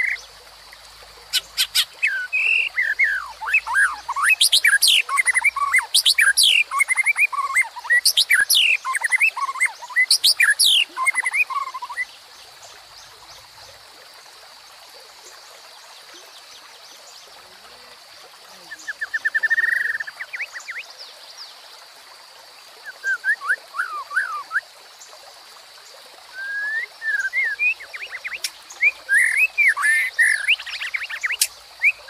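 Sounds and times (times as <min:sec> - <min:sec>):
stream babbling over rocks: 0:00.0 - 0:32.0
bird singing: 0:01.3 - 0:13.8, 0:16.0 - 0:21.6, 0:22.8 - 0:24.6, 0:26.3 - 0:32.0.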